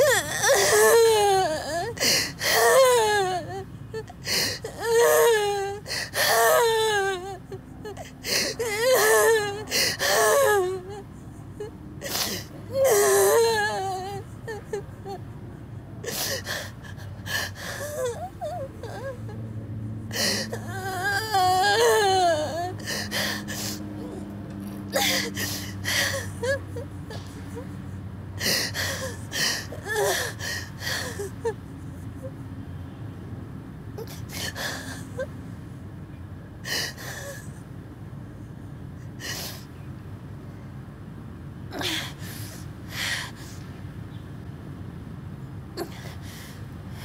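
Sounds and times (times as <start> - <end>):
woman sobbing: 0.0 - 15.4, 16.0 - 19.5, 20.1 - 32.4.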